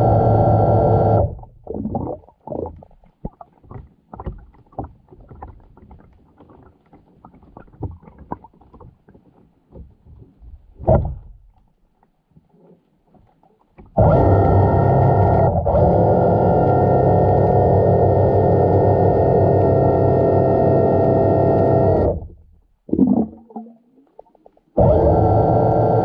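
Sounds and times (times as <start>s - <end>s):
underwater water swells: 0.0s - 25.4s
muffled underwater knocks: 2.5s - 11.7s, 13.1s - 14.0s.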